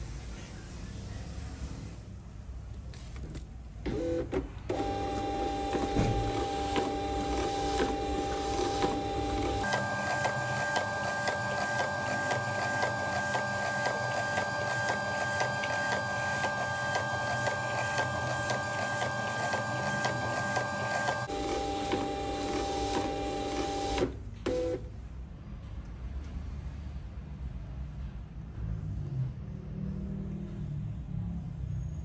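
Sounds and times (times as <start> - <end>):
label printer motor whine: 3.9 - 24.7.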